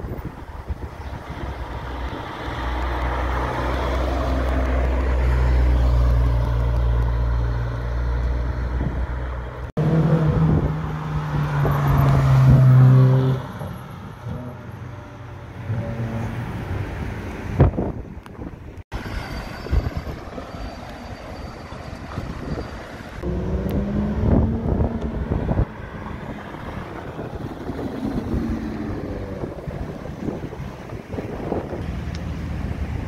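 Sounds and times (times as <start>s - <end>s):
sports car engines passing: 0.3s - 18.0s, 23.1s - 33.0s
quiet traffic: 20.3s - 33.0s.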